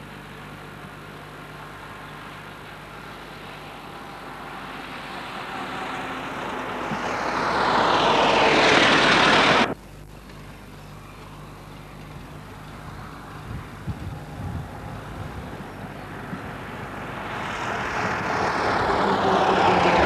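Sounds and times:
car approaching: 0.0 - 20.0
old car driving past: 1.8 - 9.8, 14.6 - 20.0.

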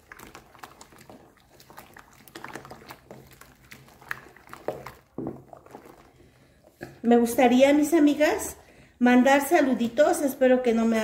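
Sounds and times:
water sloshing: 0.0 - 7.0.

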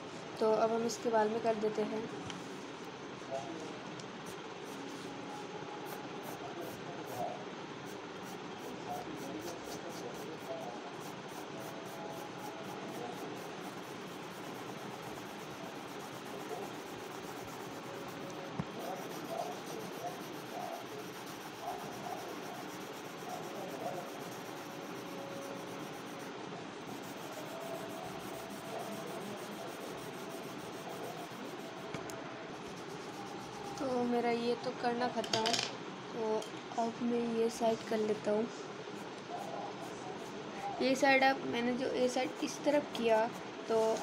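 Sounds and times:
pencil shading on paper: 7.9 - 26.3, 26.9 - 31.8, 32.6 - 33.8.

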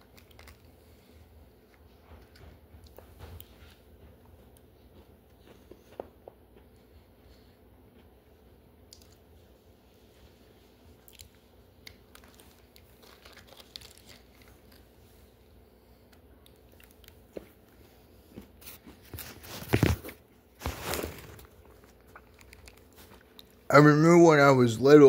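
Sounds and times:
person crunching cookies: 0.0 - 1.8, 11.0 - 15.4, 16.1 - 23.7.

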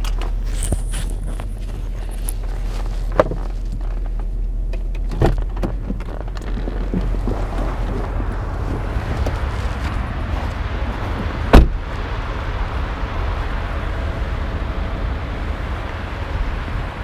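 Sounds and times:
engine and tyre rumble: 0.0 - 17.0
sharp loud thump: 11.5 - 11.8.

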